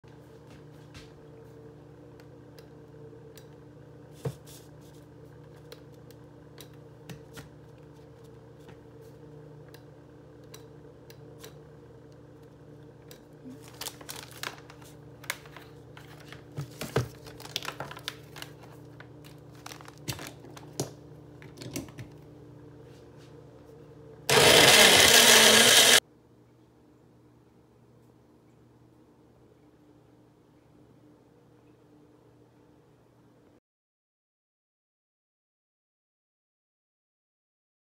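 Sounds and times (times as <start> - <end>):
faint steady hum: 0.1 - 33.6
plastic rustling: 13.4 - 20.8
blender running: 24.3 - 26.0.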